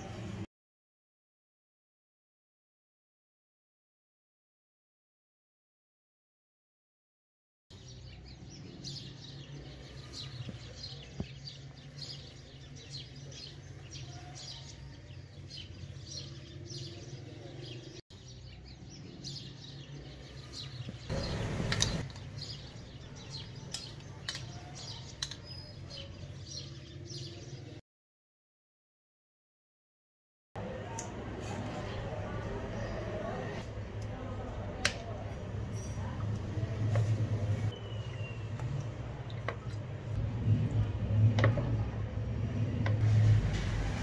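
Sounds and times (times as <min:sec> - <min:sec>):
small birds chirping: 0:07.7 - 0:27.8, 0:31.8 - 0:40.3.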